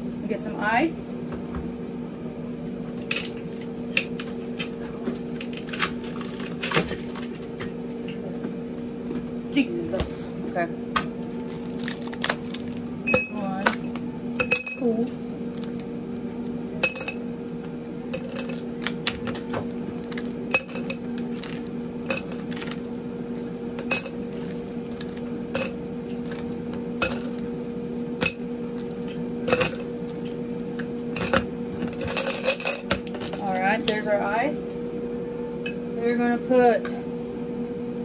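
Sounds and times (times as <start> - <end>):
low electrical hum: 0.0 - 38.0
glassware and bar utensils clinking: 16.8 - 17.2, 18.2 - 18.6.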